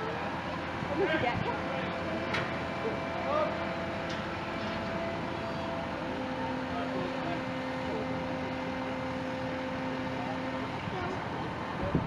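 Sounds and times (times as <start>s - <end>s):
heavy machinery engines running: 0.0s - 12.0s.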